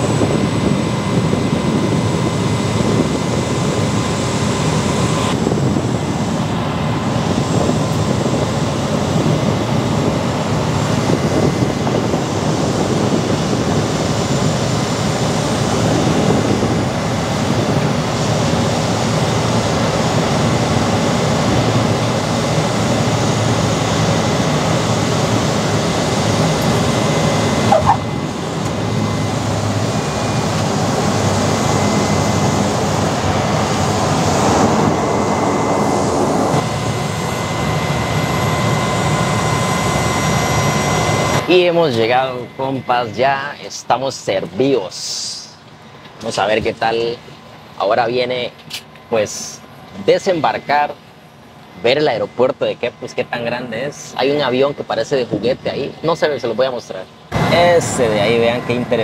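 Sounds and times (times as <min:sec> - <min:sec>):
wind rush: 0:00.0 - 0:42.2
propeller engine drone: 0:00.0 - 0:59.0.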